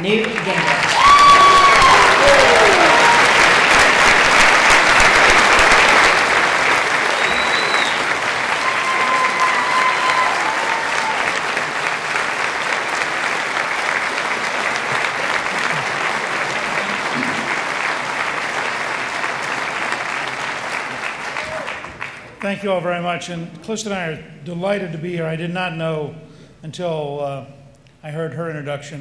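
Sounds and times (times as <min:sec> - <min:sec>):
audience applauding: 0:00.0 - 0:22.4.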